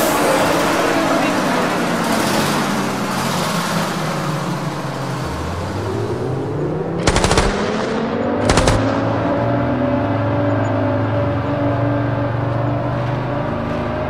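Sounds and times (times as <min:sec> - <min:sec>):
bus engine pulling away: 0:00.0 - 0:14.0
automatic gunfire bursts: 0:07.0 - 0:09.3.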